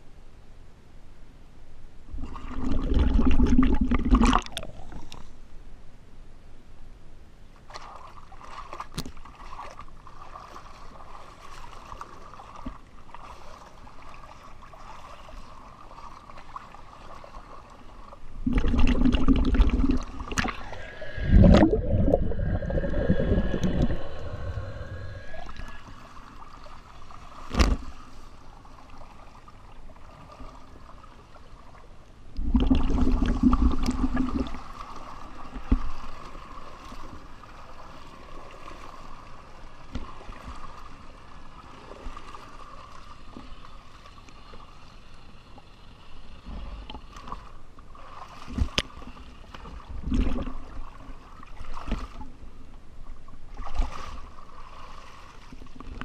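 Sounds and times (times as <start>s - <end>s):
water sloshing and splashing: 2.1s - 5.3s, 7.6s - 44.3s, 46.4s - 56.0s
rushing water: 7.7s - 31.2s.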